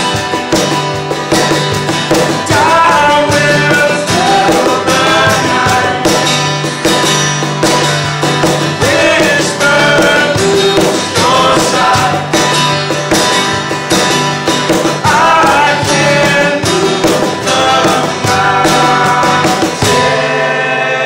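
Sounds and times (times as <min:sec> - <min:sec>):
cajon drumming: 0:00.0 - 0:20.9
acoustic guitars strummed: 0:00.0 - 0:21.0
voices singing in harmony: 0:02.4 - 0:06.6, 0:08.7 - 0:13.0, 0:14.9 - 0:21.0.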